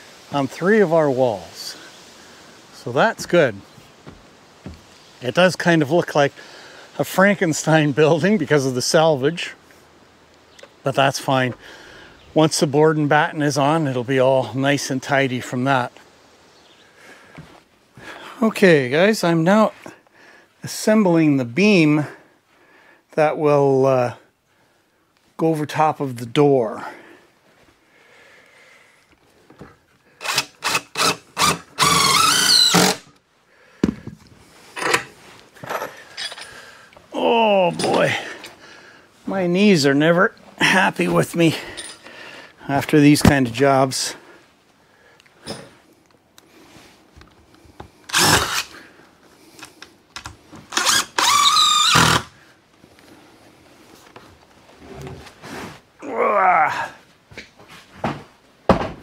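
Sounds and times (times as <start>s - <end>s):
drill driving screws into wood: 30.2s - 33.2s, 48.1s - 48.8s, 50.7s - 52.4s.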